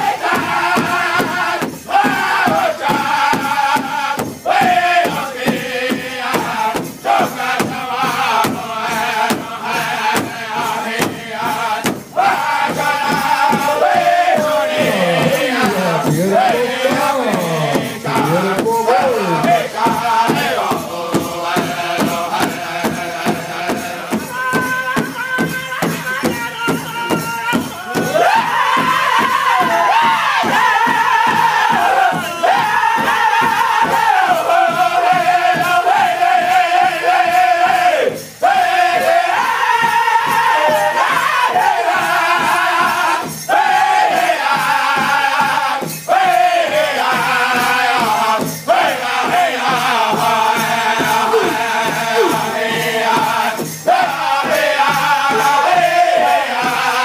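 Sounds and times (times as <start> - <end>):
group singing together: 0.0 - 57.0
bass drum steady beat: 10.6 - 25.6, 49.6 - 53.7.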